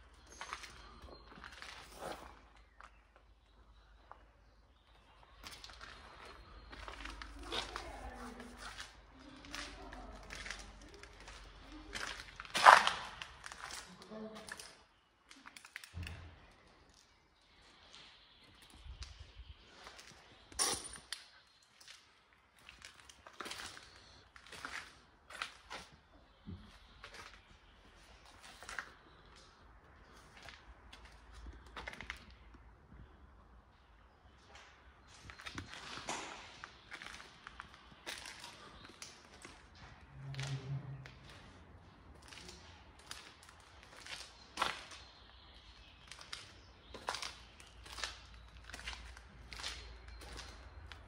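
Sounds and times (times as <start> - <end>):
footsteps crunching on concrete: 0.2 - 14.7, 34.4 - 51.0.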